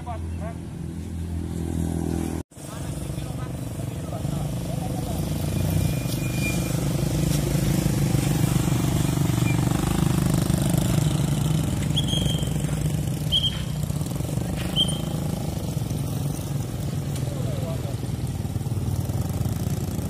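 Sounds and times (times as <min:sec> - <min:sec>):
small motorcycle engines: 0:01.4 - 0:20.0
traffic whistle blasts: 0:11.9 - 0:13.8, 0:14.6 - 0:15.3.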